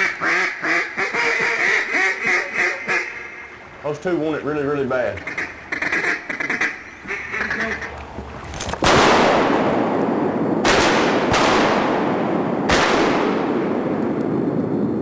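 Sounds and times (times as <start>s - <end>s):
ducks quacking: 0.0s - 3.9s, 4.9s - 8.1s
shotgun blasts echoing: 8.8s - 14.5s.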